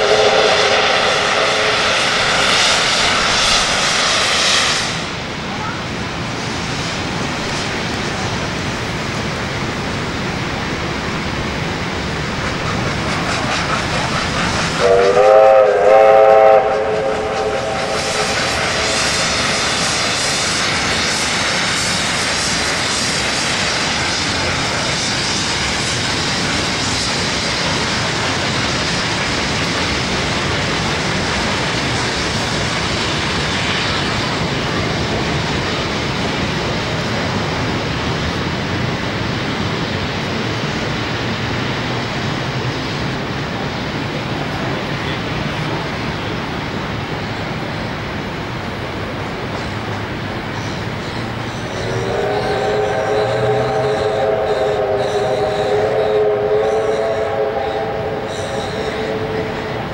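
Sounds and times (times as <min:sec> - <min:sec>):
steam whistle blast: 0:00.0 - 0:05.1, 0:14.8 - 0:20.7, 0:51.7 - 0:59.9
steam train passing: 0:00.0 - 0:59.9.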